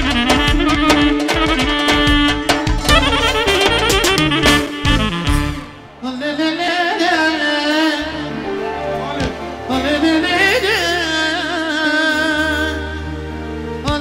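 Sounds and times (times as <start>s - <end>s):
live band music: 0.0s - 14.0s
man singing into a microphone: 6.0s - 8.5s, 9.6s - 13.0s.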